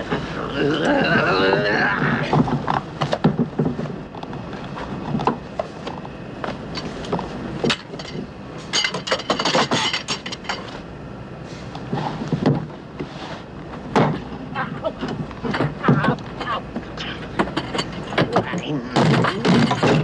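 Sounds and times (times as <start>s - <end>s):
knocks and bumps: 1.9s - 5.7s, 13.8s - 20.0s.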